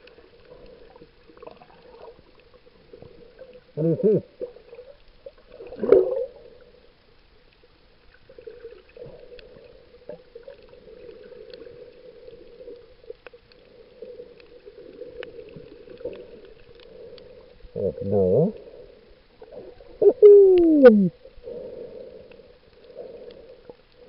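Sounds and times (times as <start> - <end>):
muffled hum of moving water: 0.0 - 24.0
underwater gurgling burst: 3.0 - 6.7.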